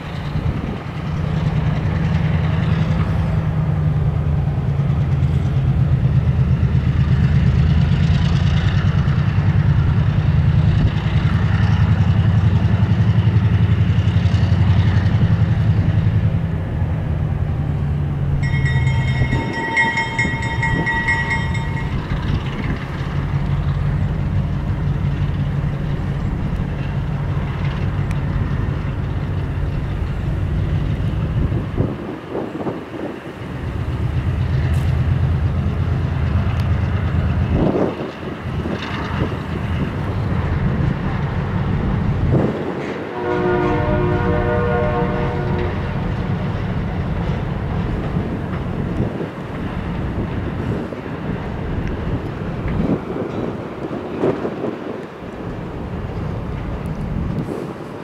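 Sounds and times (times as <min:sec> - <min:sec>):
diesel locomotive engine running: 0:00.0 - 0:58.0
multi-tone train horn: 0:42.8 - 0:46.1.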